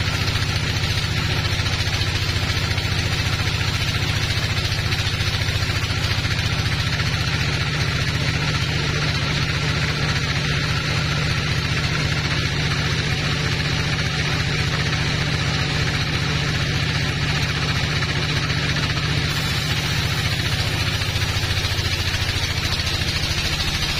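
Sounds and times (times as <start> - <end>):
low machine hum: 0.0 - 23.9
bandsaw blade cutting log: 19.3 - 23.9.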